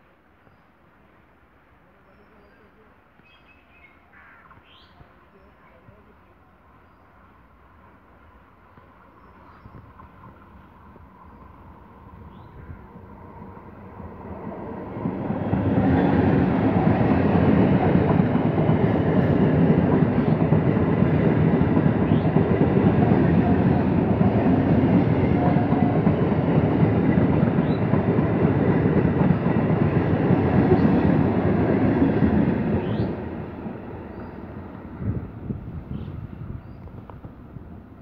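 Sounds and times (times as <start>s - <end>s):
train wheels rumbling on rails: 7.2s - 38.0s.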